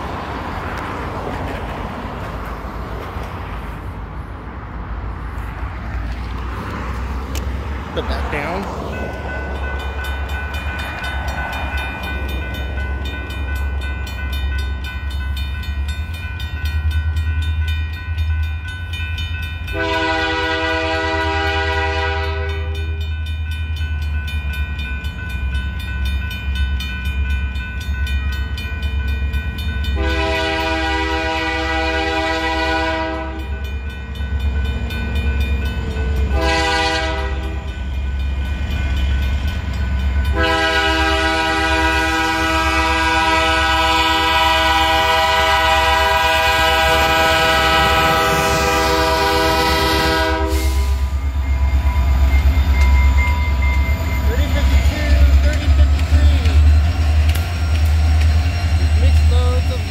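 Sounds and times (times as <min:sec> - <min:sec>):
grade crossing bell ringing: 0:07.7 - 0:31.6, 0:32.2 - 0:59.9
locomotive chime horn blasts: 0:19.6 - 0:23.3, 0:29.8 - 0:33.7, 0:36.1 - 0:37.8, 0:40.2 - 0:55.7.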